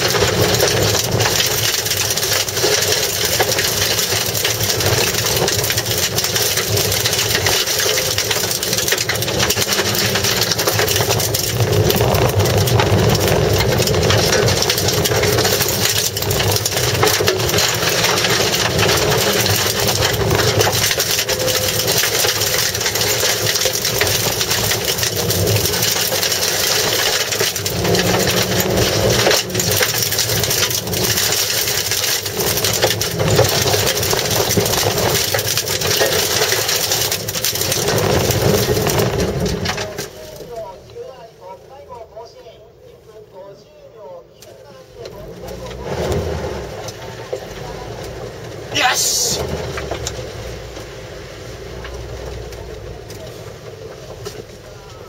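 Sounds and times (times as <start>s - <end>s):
car engine under load: 0.0s - 41.8s, 44.4s - 55.0s
gravel rattling against car underside: 0.0s - 55.0s.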